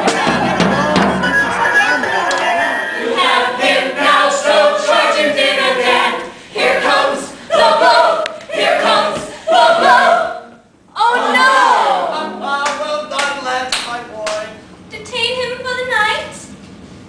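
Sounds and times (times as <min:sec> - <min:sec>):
men and women singing together: 0:02.9 - 0:10.5.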